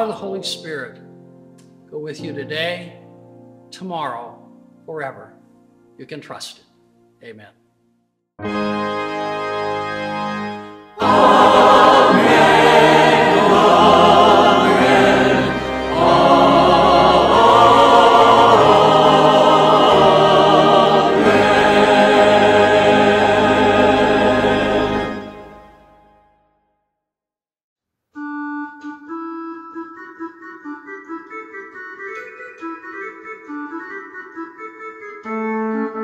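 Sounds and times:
mixed choir singing: 11.0s - 25.7s.

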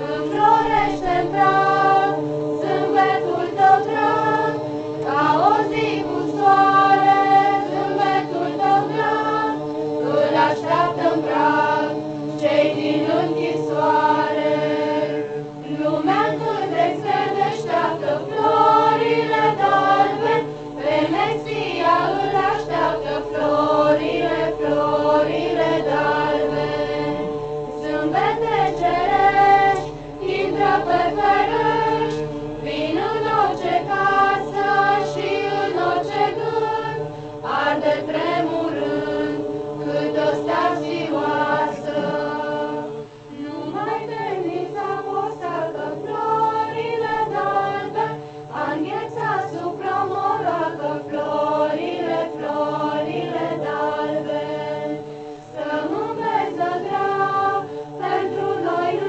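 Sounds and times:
group of carolers singing: 0.0s - 59.0s.

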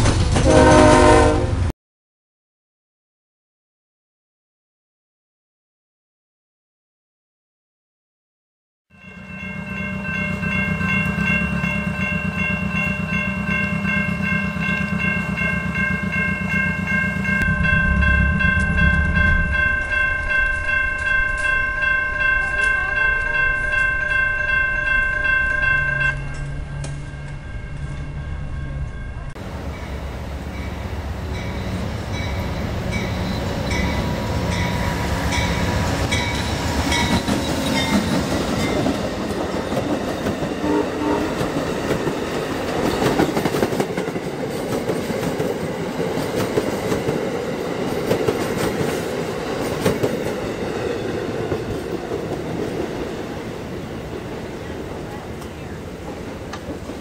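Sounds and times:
diesel locomotive rumbling: 0.0s - 1.7s, 9.0s - 57.0s
crossing bell ringing: 8.9s - 54.5s.

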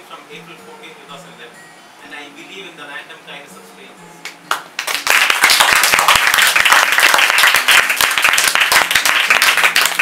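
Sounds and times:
audience applauding: 4.5s - 10.0s.

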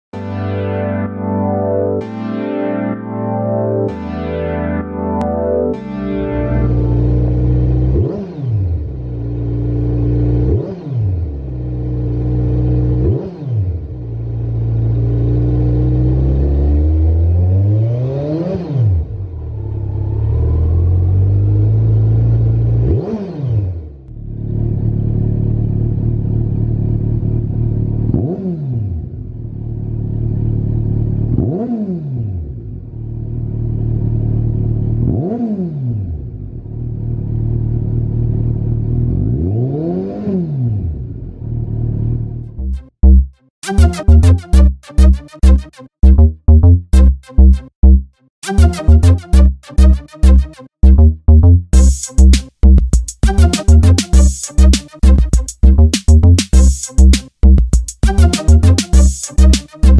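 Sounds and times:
motorcycle exhaust idling and revving: 6.9s - 17.8s, 18.4s - 43.3s.

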